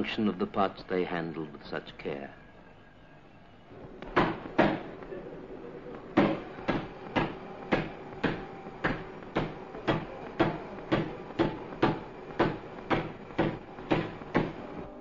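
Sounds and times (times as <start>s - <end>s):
rhythmic mechanical knocking: 3.8s - 15.0s.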